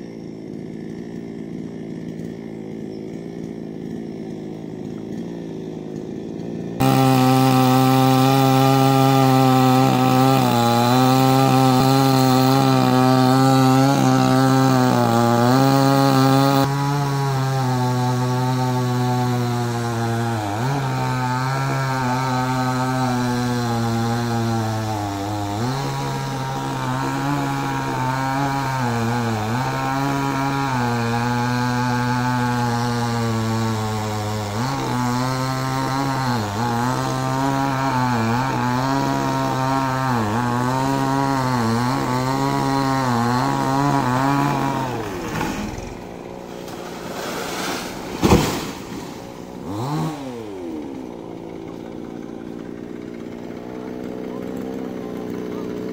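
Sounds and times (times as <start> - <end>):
chainsaw cutting wood: 0.0 - 55.9
loud thump: 48.1 - 49.1.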